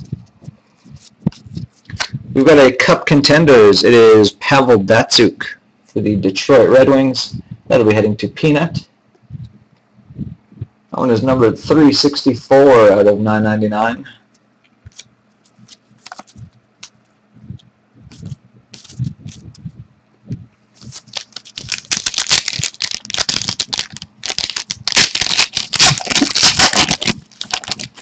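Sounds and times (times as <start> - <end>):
trading cards clicking and scraping: 14.4 - 17.0, 18.1 - 19.6, 20.8 - 28.0
packaging rustling: 14.9 - 17.0, 20.8 - 28.0.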